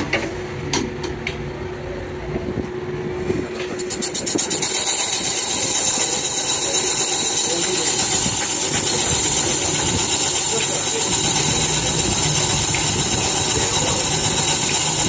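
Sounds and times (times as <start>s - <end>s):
machine humming: 3.9s - 15.0s.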